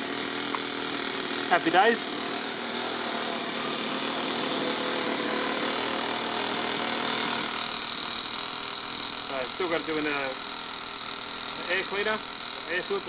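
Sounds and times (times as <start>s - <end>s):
model engine idling: 7.9s - 13.0s.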